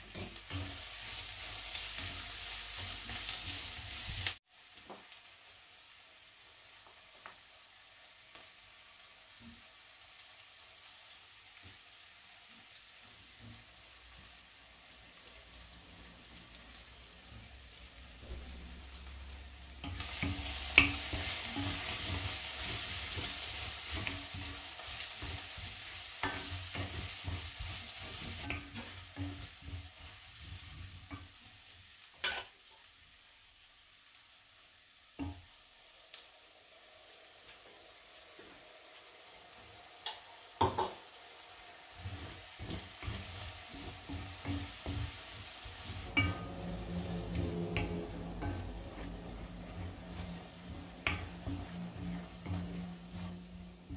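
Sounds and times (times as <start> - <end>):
onions sizzling in a pot: 0.0 - 53.9
wooden spoon scraping a pot: 42.0 - 53.9.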